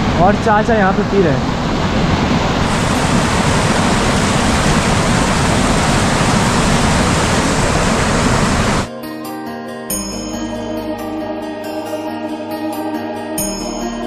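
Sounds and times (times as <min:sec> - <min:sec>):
stream rushing over boulders: 0:00.0 - 0:08.9.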